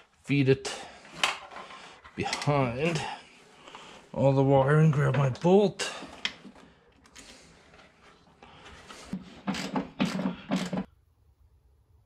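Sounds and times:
hand wrench rasping: 9.1s - 10.9s.

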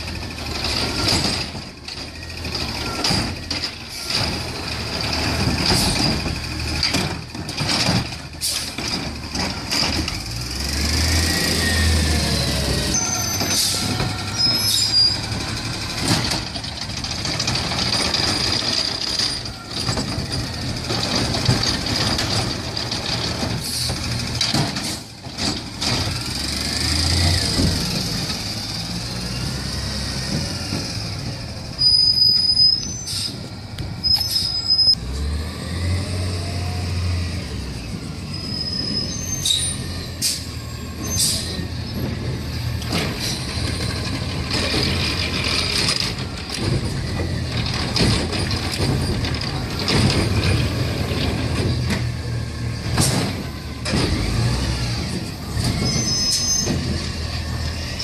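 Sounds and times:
brake squeals: 0.0s - 58.0s
garbage truck engine running: 0.0s - 58.0s
carts banging against hopper: 0.4s - 10.5s, 12.9s - 28.5s, 40.2s - 58.0s
air brake hiss: 33.0s - 33.4s.

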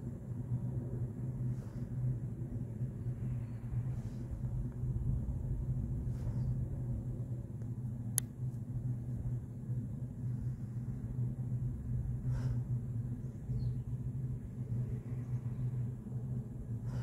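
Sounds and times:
low rumble with hum: 0.0s - 17.0s.

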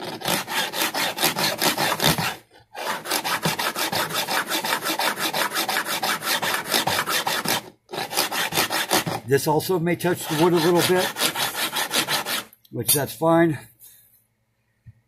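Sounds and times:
file rasping on metal frets: 0.0s - 9.3s, 10.0s - 12.5s.

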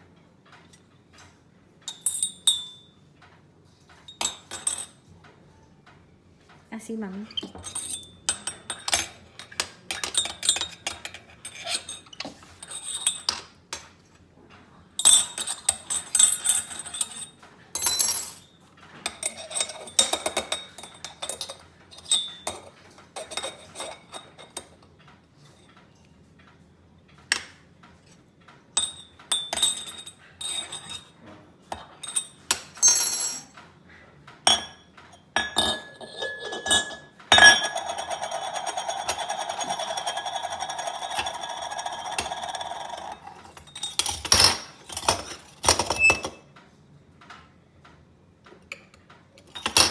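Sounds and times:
metallic clinks and scraping: 3.8s - 5.1s, 7.3s - 14.2s, 15.0s - 24.8s, 28.8s - 33.6s, 34.5s - 46.4s.

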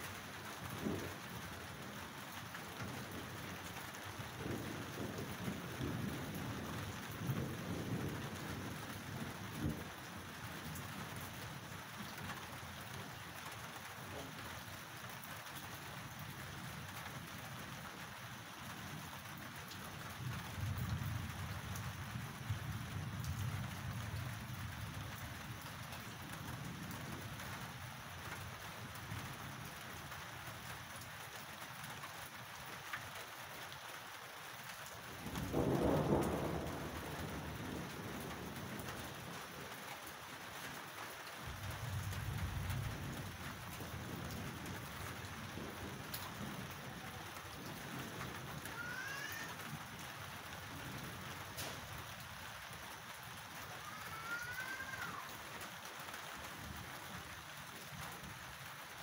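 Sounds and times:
steady rain: 0.0s - 59.0s
low rolling thunder: 0.4s - 13.2s, 18.8s - 27.5s, 35.0s - 39.8s, 41.4s - 53.1s.

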